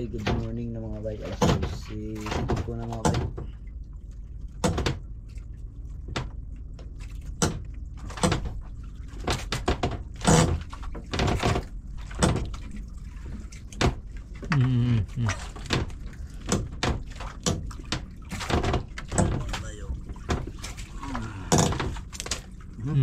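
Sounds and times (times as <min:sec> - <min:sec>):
steady low hum: 0:00.0 - 0:23.0
knocks on wooden boat: 0:04.6 - 0:05.0, 0:07.4 - 0:08.6, 0:15.6 - 0:20.6.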